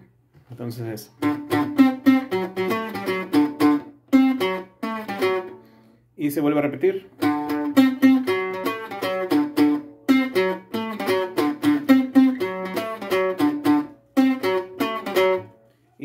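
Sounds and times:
plucked guitar notes: 0:01.1 - 0:05.9, 0:07.1 - 0:15.6.

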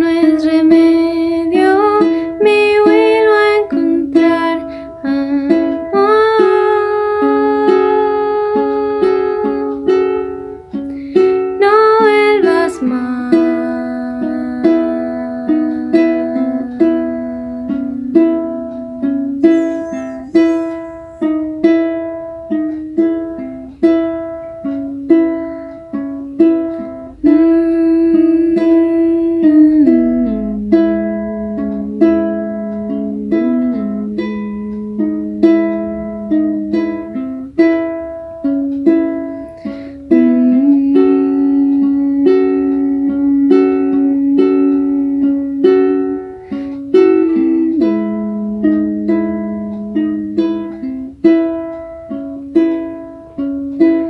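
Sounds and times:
woman singing: 0:00.0 - 0:10.5, 0:11.4 - 0:18.6, 0:27.0 - 0:31.3, 0:39.4 - 0:49.0
ukulele playing: 0:00.0 - 0:54.0.

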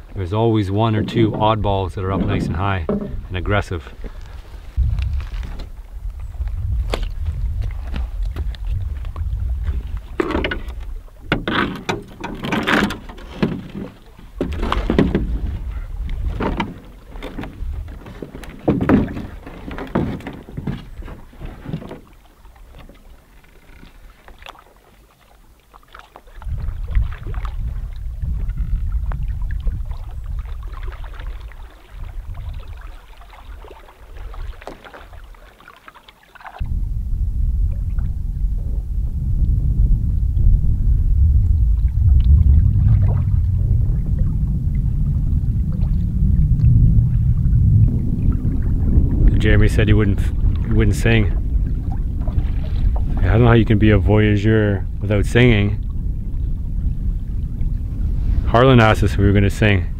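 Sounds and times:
wind rumble on microphone: 0:00.0 - 0:24.6, 0:26.2 - 0:35.4, 0:36.5 - 0:59.9
canoe knocks and scrapes: 0:00.6 - 0:05.8, 0:06.8 - 0:24.4.

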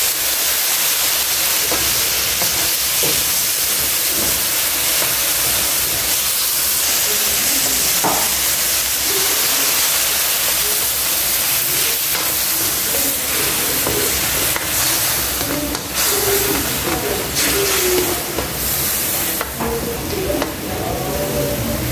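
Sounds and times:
chicken sizzling in a wok: 0:00.0 - 0:21.9
spatula scraping pan: 0:09.3 - 0:20.0.

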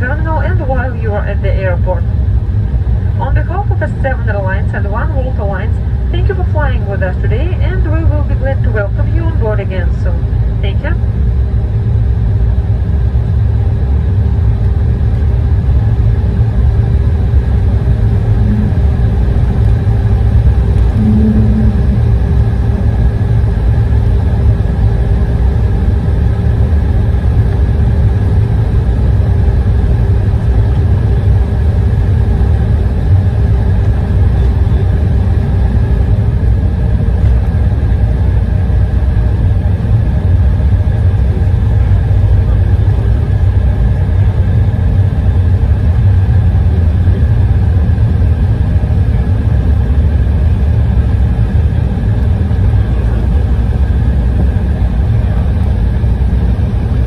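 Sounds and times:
aircraft low rumble: 0:00.0 - 0:57.0
jet engine hum: 0:00.0 - 0:57.0.

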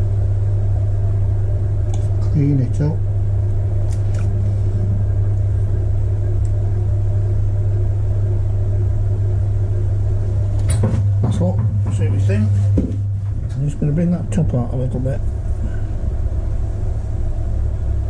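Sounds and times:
potter's wheel humming: 0:00.0 - 0:18.0.

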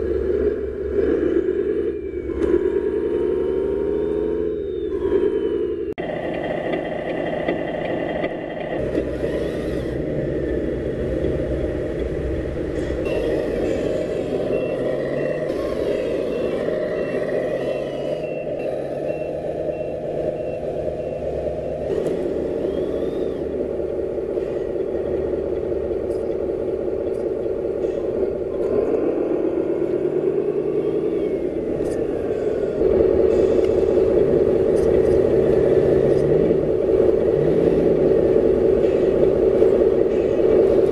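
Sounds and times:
diesel truck engine revving: 0:00.0 - 0:06.0, 0:08.6 - 0:40.9
reversing alarm beeping: 0:00.0 - 0:06.0, 0:13.0 - 0:23.9.

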